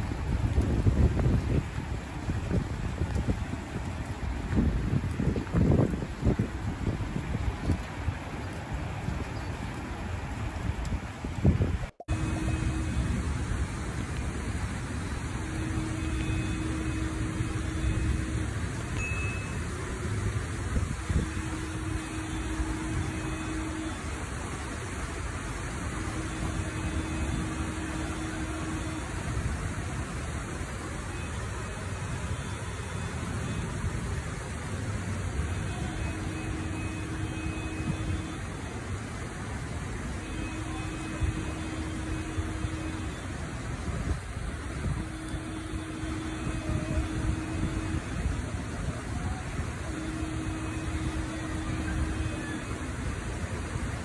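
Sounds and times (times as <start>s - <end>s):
floodwater rushing: 0.0s - 54.0s
heavy rain: 0.0s - 54.0s
faint steady hum: 12.0s - 54.0s
faint steady tone: 12.0s - 54.0s.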